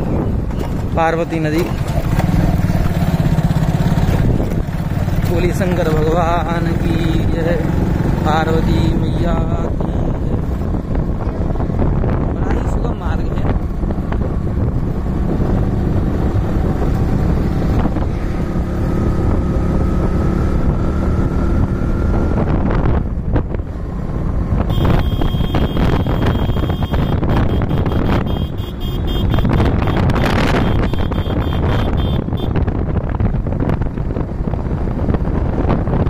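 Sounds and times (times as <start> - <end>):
engine and road rumble: 0.0 - 36.0
wind buffeting microphone: 0.0 - 36.0.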